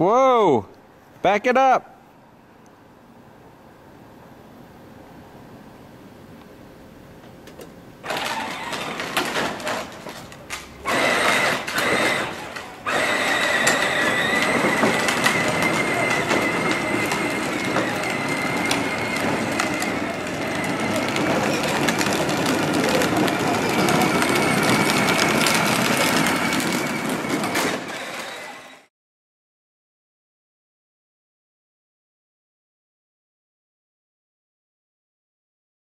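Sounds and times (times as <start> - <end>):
plastic wheels grinding on pavement: 8.0 - 28.9
electric motor whine: 10.8 - 28.9.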